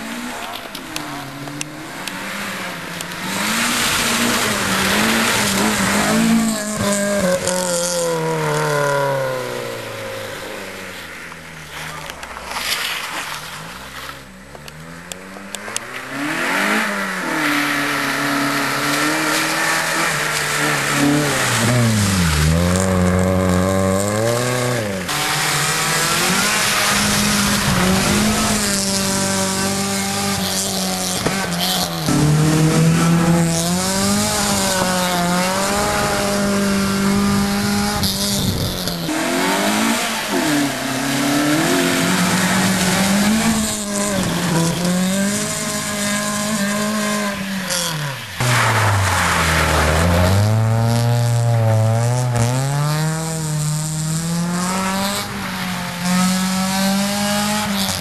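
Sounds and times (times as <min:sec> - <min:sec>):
rally car engine revving: 0:00.0 - 0:58.0
tyre hiss on wet road: 0:45.4 - 0:50.6.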